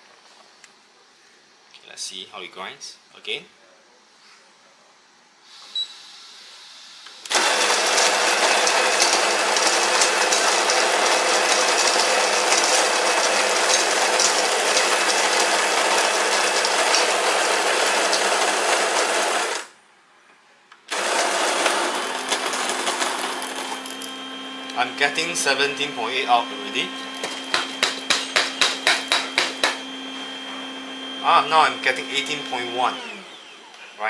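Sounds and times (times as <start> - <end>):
coffee grinder grinding beans: 7.3 - 19.7, 20.9 - 29.9.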